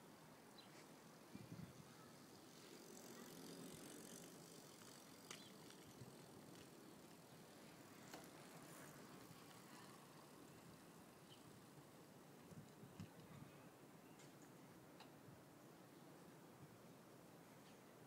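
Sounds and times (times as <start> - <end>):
faint street ambience: 0.0 - 18.0
bicycle riding past: 0.1 - 12.8.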